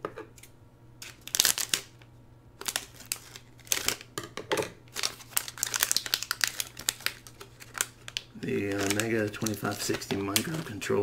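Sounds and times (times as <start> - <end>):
plastic bag crinkling: 1.0 - 2.0, 2.6 - 4.1, 4.9 - 11.0.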